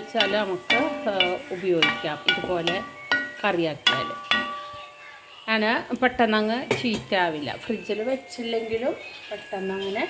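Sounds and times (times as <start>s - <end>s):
woman talking: 0.0s - 4.2s, 5.4s - 10.0s
spatula knocking against pan: 0.0s - 4.8s
vegetables sizzling: 0.0s - 10.0s.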